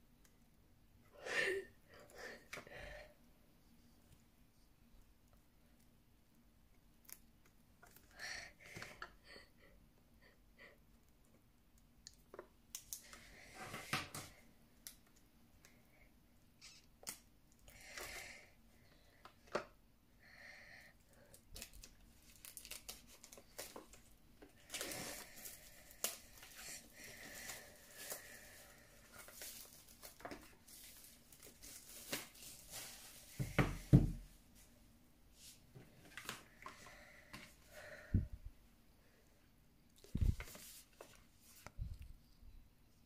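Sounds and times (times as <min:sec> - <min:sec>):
plastic shrink wrap tearing: 0:21.5 - 0:23.9, 0:24.6 - 0:33.3.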